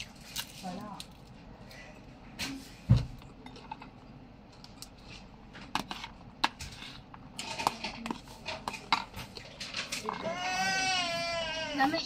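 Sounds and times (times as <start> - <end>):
cutlery scraping plastic container: 5.7 - 10.8.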